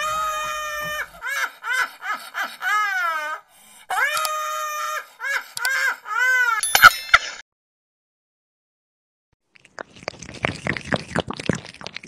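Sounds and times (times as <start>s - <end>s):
woman shrieking with laughter: 0.0s - 6.7s.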